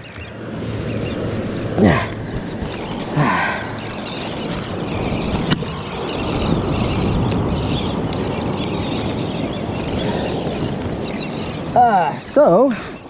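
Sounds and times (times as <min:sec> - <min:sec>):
wind: 0:00.0 - 0:13.0.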